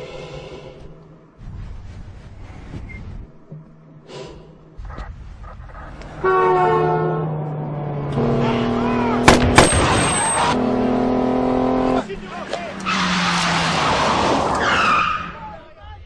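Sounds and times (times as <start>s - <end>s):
deep horn blast: 6.0s - 9.6s
sharp gunshots: 9.2s - 10.3s.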